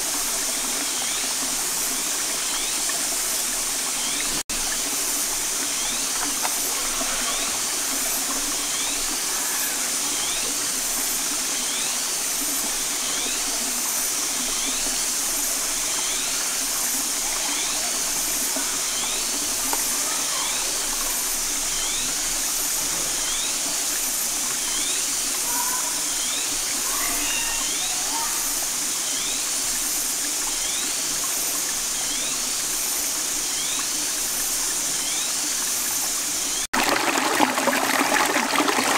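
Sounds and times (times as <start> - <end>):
stream running over rocks: 0.0 - 38.9.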